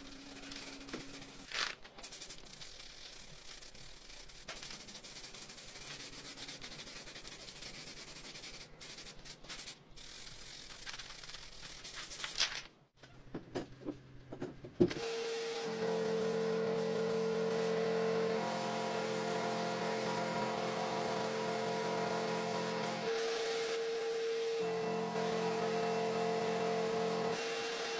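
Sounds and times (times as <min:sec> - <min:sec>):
spray paint can hissing: 0:00.0 - 0:12.4, 0:18.5 - 0:23.8.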